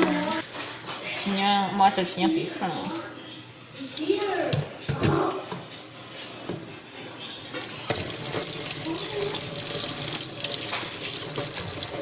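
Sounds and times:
kitchen faucet turning on: 7.7 - 12.0
tap water splashing into metal sink: 7.8 - 12.0.

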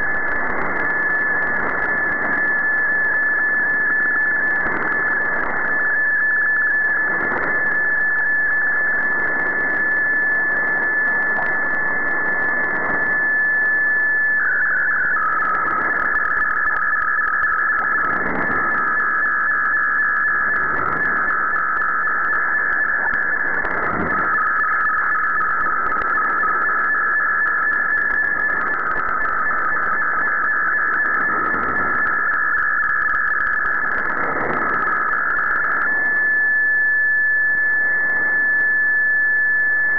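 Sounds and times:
radio static hiss: 13.0 - 36.4.

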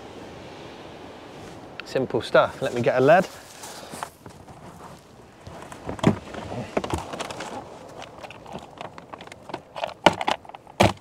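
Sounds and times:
rummaging in tackle box: 4.6 - 11.0.

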